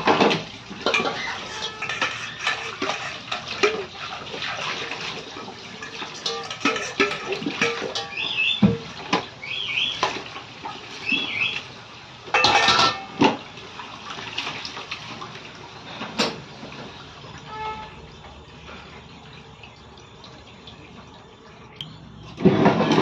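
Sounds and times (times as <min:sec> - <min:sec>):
water rushing from tap: 0:00.0 - 0:12.0
steel utensils clinking: 0:00.8 - 0:04.0, 0:04.7 - 0:08.5, 0:12.4 - 0:13.2.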